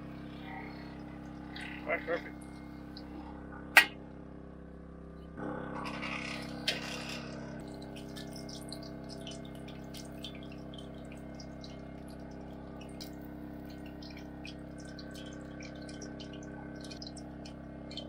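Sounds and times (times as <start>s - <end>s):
fish deep-frying in hot oil: 6.0s - 18.0s.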